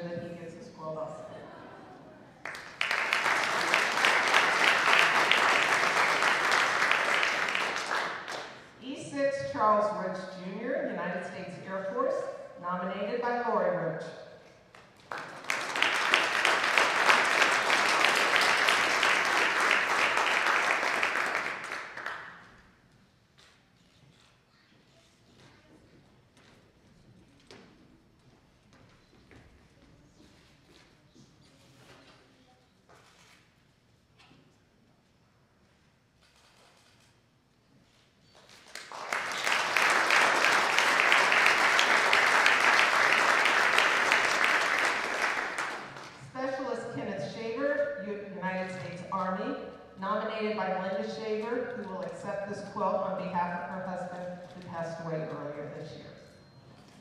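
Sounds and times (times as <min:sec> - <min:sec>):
crowd applauding: 0:02.4 - 0:08.7, 0:14.9 - 0:22.5, 0:38.5 - 0:46.2.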